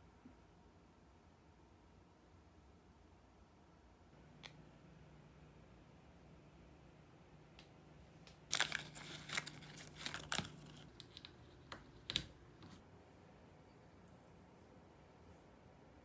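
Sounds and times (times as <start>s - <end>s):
faint low hum: 0.0s - 16.0s
crinkling and rustling: 8.3s - 12.8s.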